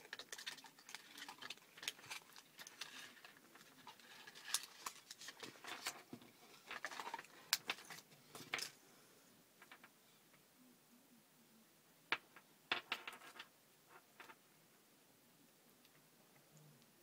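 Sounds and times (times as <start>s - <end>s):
plastic packaging handling: 0.0s - 8.7s
cable clicks and rustles: 0.0s - 8.8s.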